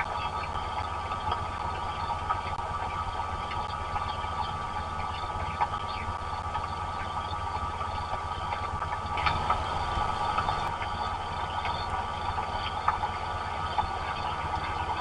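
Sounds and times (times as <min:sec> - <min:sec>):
low rumble: 0:00.0 - 0:15.0
raindrops ticking: 0:00.0 - 0:15.0
heavy rain hissing: 0:09.0 - 0:15.0.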